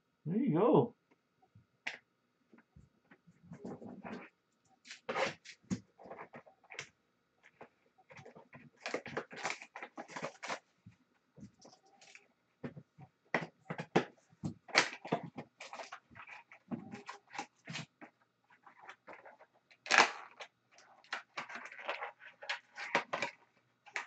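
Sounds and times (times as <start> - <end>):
card packs rustling and crinkling: 7.5 - 10.7, 13.4 - 18.0.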